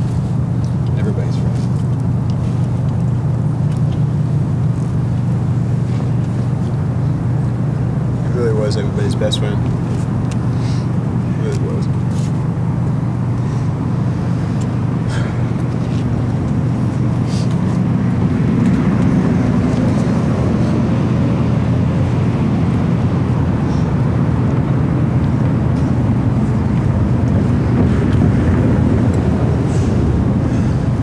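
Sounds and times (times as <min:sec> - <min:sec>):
low rumble: 0:01.8 - 0:31.0.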